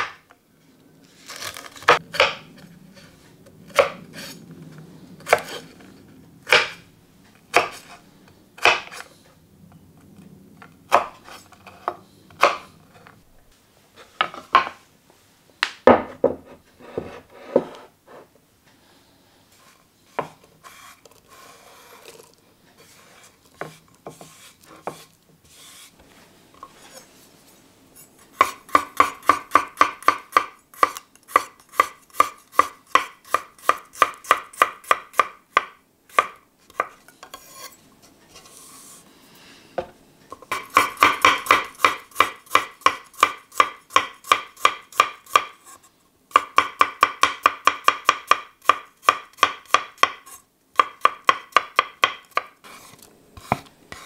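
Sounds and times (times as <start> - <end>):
soft scraping and handling: 0.6 - 6.2, 11.2 - 15.5, 16.2 - 28.3, 36.6 - 40.4, 52.6 - 54.0.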